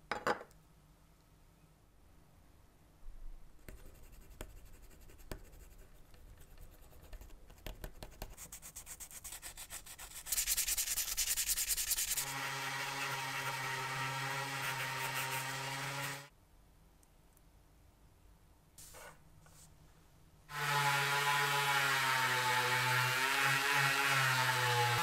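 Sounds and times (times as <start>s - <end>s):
rotary tool polishing metal: 9.5s - 16.3s.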